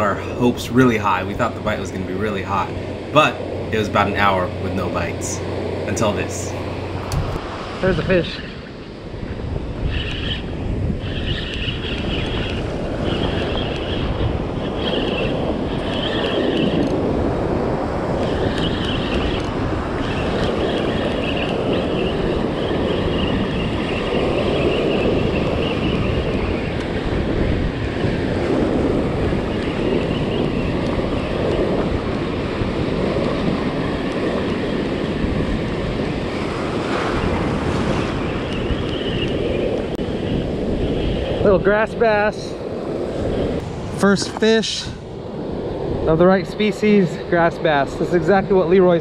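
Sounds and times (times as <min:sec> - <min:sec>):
wind buffeting microphone: 0:00.0 - 0:49.0
surf washing over sand: 0:12.2 - 0:49.0.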